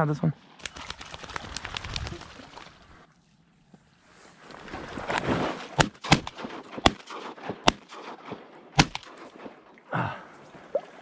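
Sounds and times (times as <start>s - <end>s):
shotgun blasts: 5.8s - 9.7s.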